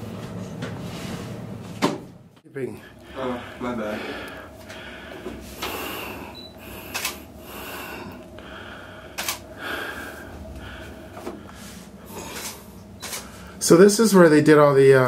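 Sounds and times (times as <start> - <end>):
sharp clicks: 6.9 - 7.2, 9.2 - 9.4.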